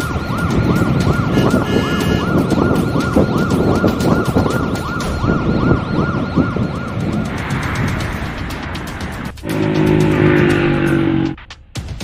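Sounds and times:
warbling siren: 0:00.0 - 0:11.4
dense low rumble: 0:05.0 - 0:11.4.

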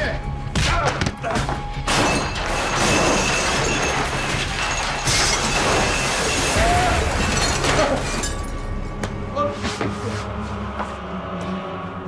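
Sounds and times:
ceramic bowls smashing: 0:01.9 - 0:08.7.

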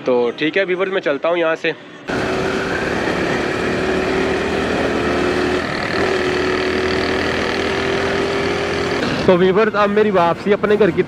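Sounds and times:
motorcycle engine cruising: 0:02.1 - 0:10.3
wind and road noise: 0:02.1 - 0:11.0.

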